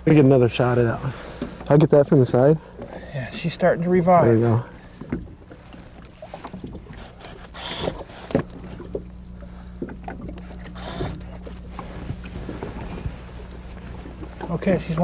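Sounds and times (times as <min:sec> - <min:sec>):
water lapping against boat: 0:00.0 - 0:15.0
knocks against hull: 0:05.0 - 0:05.4, 0:07.8 - 0:09.1.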